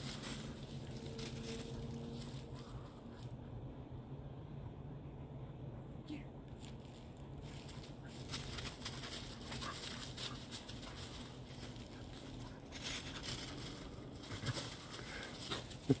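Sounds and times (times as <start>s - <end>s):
paws scuffling through dry leaves: 0.0s - 3.3s, 6.6s - 16.0s.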